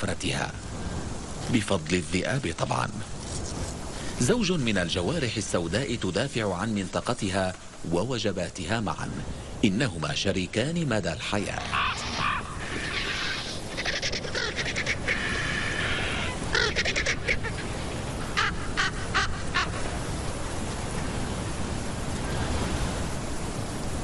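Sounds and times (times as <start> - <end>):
steady wind: 0.0 - 24.0
vultures giving harsh calls: 11.5 - 20.0.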